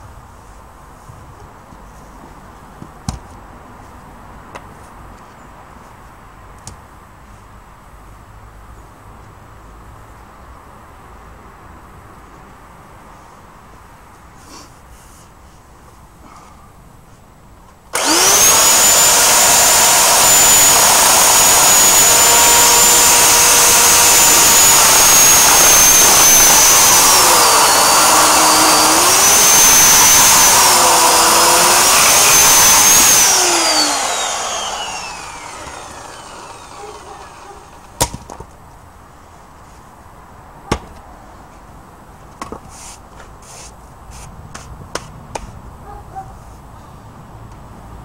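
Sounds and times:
electric chainsaw whining: 18.0s - 38.0s.

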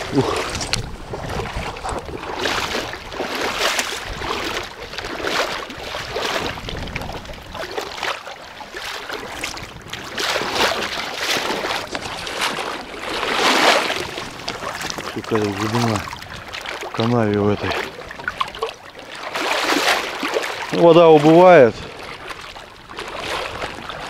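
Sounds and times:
footsteps wading through water: 0.0s - 24.0s.

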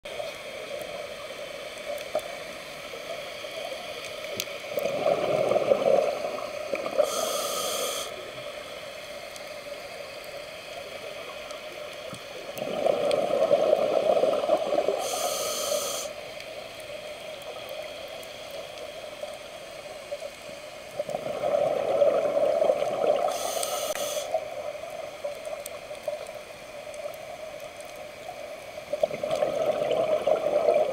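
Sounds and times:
diver breathing through regulator: 5.6s - 8.3s, 14.9s - 16.2s, 23.2s - 24.4s.

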